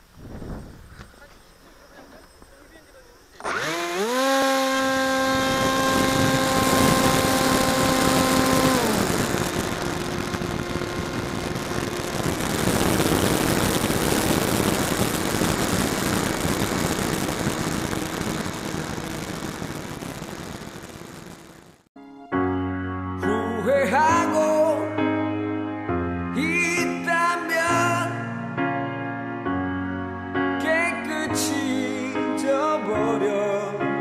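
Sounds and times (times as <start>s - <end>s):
wind rush on microphone: 0.0s - 1.1s, 4.5s - 20.2s
model airplane motor whine: 3.4s - 21.5s.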